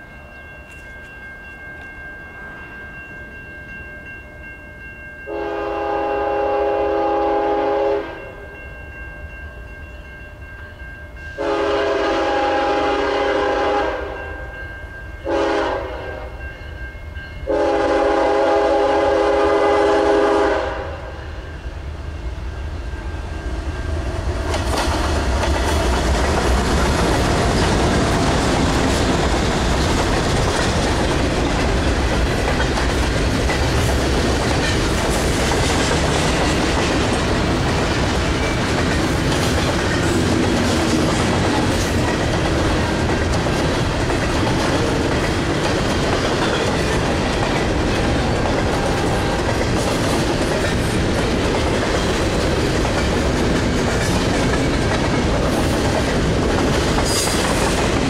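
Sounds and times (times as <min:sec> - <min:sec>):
train rumbling past: 0:00.0 - 0:58.0
locomotive air horn: 0:05.3 - 0:08.2, 0:11.4 - 0:14.2, 0:15.2 - 0:16.4, 0:17.5 - 0:21.2.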